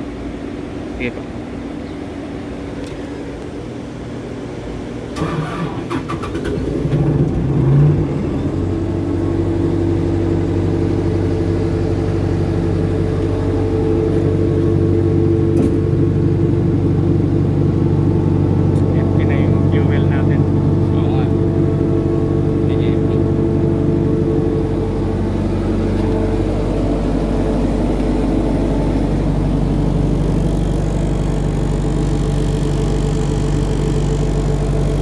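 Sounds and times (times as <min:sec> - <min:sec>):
diesel engine idling: 0:00.0 - 0:35.0
starter motor cranking: 0:05.2 - 0:07.5.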